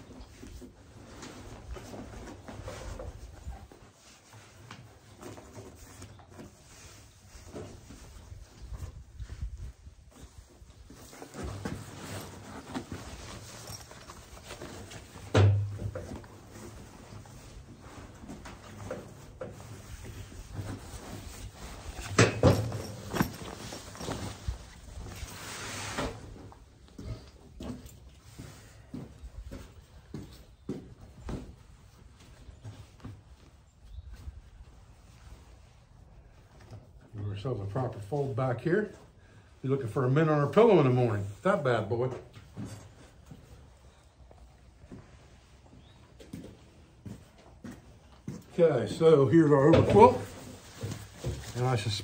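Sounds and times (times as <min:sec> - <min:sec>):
fabric rustling and sliding: 0:19.6 - 0:26.4.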